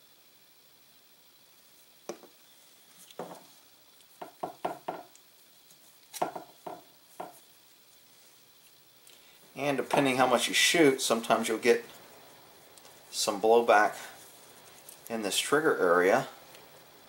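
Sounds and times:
gun parts knocking on workbench: 2.1s - 2.4s, 3.2s - 3.4s, 6.2s - 7.4s.

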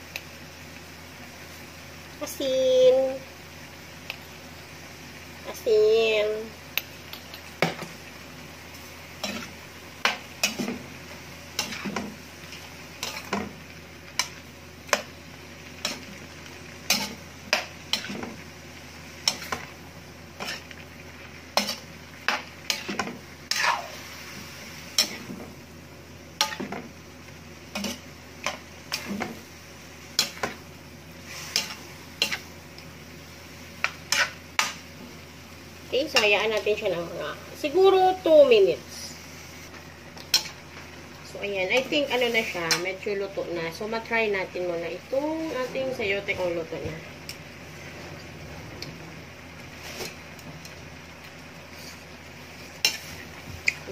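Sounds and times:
metal spatula scraping a wok: 9.2s - 10.9s, 11.5s - 13.6s, 16.8s - 18.4s, 19.2s - 19.7s, 20.4s - 20.8s, 21.5s - 25.3s, 26.4s - 26.8s, 27.7s - 29.4s, 31.2s - 32.5s, 33.8s - 34.8s, 41.8s - 43.0s, 51.7s - 53.3s.

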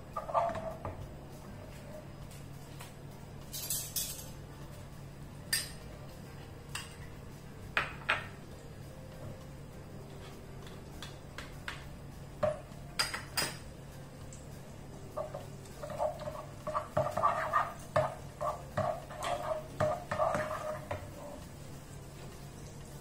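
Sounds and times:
utensils scraping a frying pan: 15.2s - 21.4s.

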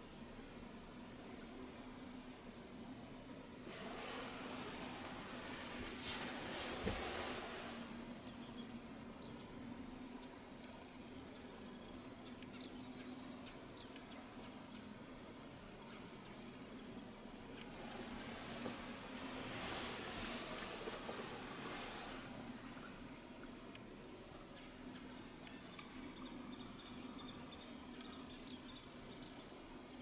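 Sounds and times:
steady low hum: 0.0s - 30.0s
small birds chirping: 3.8s - 10.4s, 11.1s - 30.0s.

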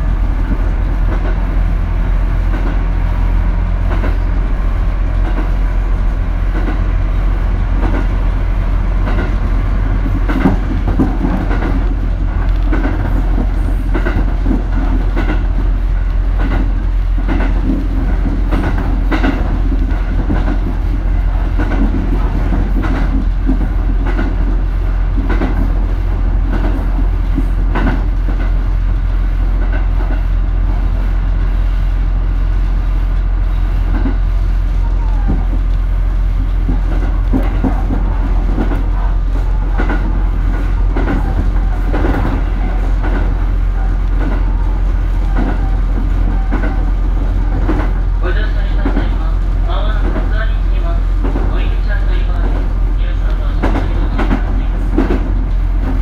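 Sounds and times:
diesel train rumbling: 0.0s - 56.0s
wheels clicking over rail joints: 7.6s - 28.6s, 34.9s - 50.6s.

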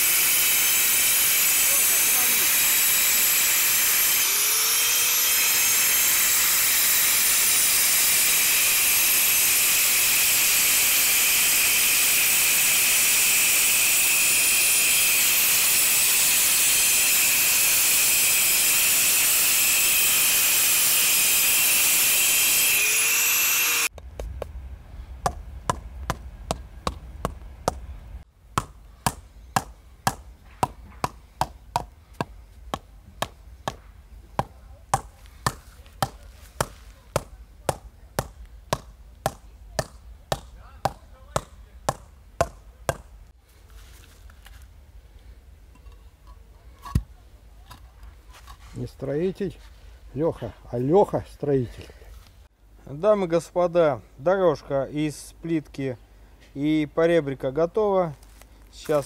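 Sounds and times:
angle grinder cutting concrete: 0.0s - 23.9s
rubber mallet tapping slabs: 28.6s - 33.8s, 34.4s - 43.1s.

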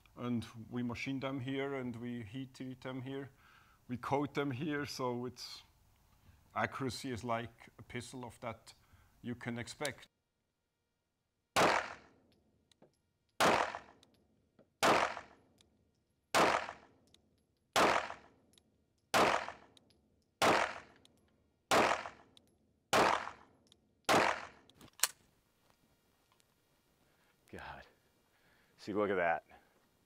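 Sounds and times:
pistol shots echoing: 11.6s - 12.2s, 13.4s - 14.0s, 14.8s - 15.4s, 16.3s - 17.0s, 17.7s - 18.4s, 19.1s - 19.8s, 20.4s - 21.0s, 21.7s - 22.3s, 22.9s - 24.7s
sharp click: 24.6s - 25.2s.

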